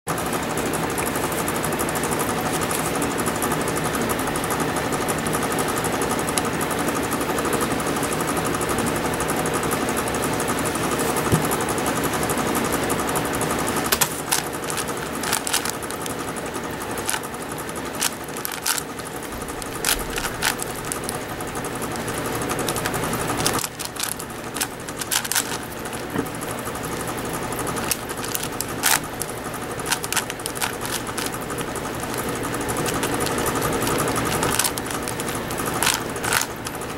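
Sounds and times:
sharp plastic snaps: 13.8s - 16.3s, 17.0s - 21.3s, 22.6s - 26.3s, 27.7s - 36.9s
puzzle cube layers clicking: 13.9s - 16.2s, 16.9s - 18.9s, 19.5s - 21.2s, 22.5s - 26.3s, 27.8s - 29.2s, 29.8s - 36.8s.

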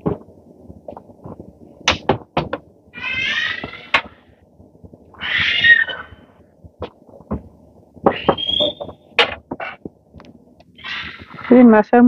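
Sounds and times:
high-pitched voice-like cries: 3.0s - 4.0s, 5.2s - 6.2s.

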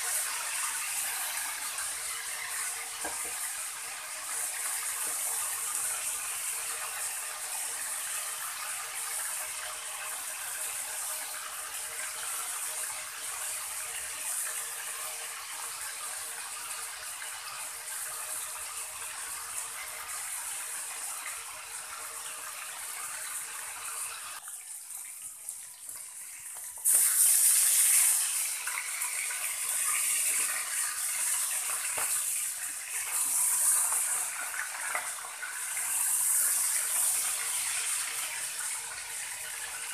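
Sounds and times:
meat sizzling in oil: 0.0s - 24.4s, 25.8s - 39.9s.

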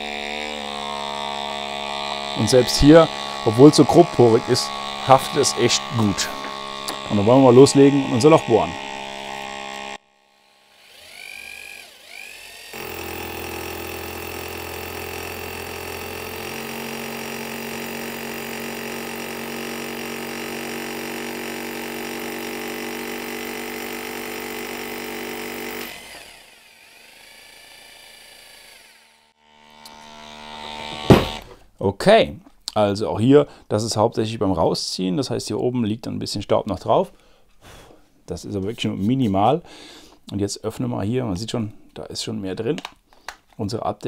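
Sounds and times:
hammer drill boring into brick: 0.0s - 31.6s
suction motor humming: 0.0s - 31.6s.

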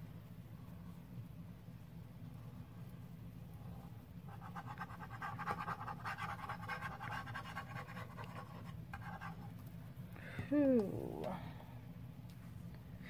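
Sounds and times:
glue stick rubbing on paper: 4.3s - 9.5s.

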